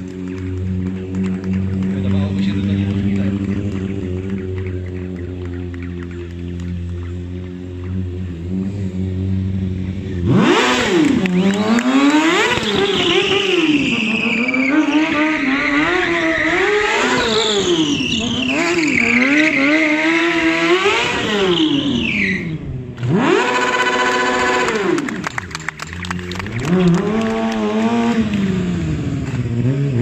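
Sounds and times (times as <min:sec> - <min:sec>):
motorcycle engine revving: 0:00.0 - 0:30.0
tyre squeal: 0:12.5 - 0:22.7.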